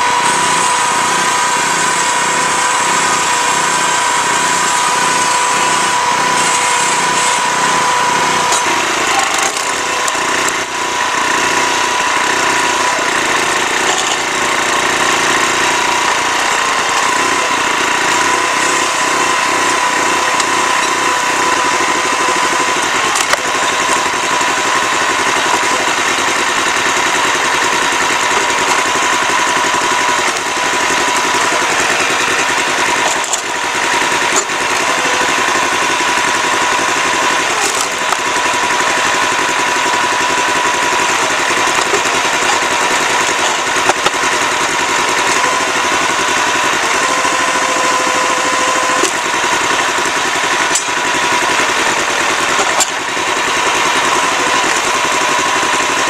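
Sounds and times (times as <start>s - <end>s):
log splitter splitting log: 0.0s - 56.0s
small gasoline engine running: 0.0s - 56.0s.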